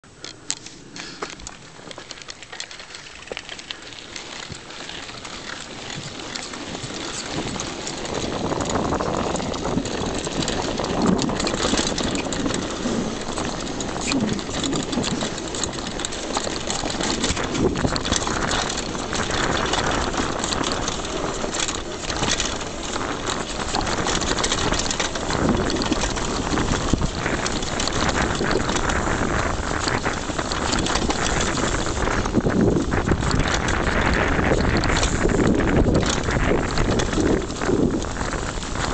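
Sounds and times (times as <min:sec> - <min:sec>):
bike rattling over bumps: 0:00.0 - 0:38.9
tyres crunching over gravel: 0:00.0 - 0:38.9.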